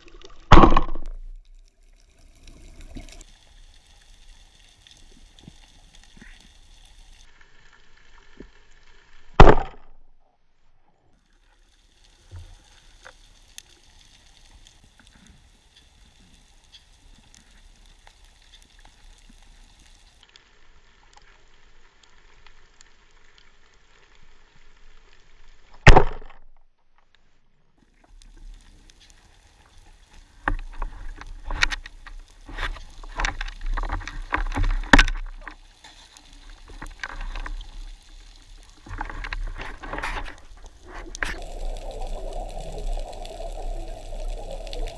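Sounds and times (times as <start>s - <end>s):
speargun firing crack: 0.5s - 1.0s, 9.4s - 9.9s
knocks and rattles among rocks: 0.5s - 1.1s
faint underwater hiss: 1.3s - 9.4s, 11.1s - 25.7s, 27.8s - 44.9s
low water rumble: 28.0s - 44.9s.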